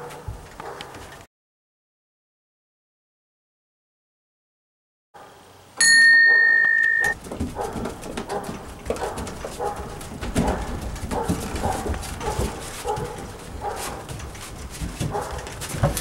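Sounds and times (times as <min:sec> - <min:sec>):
small bell ringing: 0:05.8 - 0:07.2
bare feet thumping on wooden deck: 0:07.2 - 0:16.0.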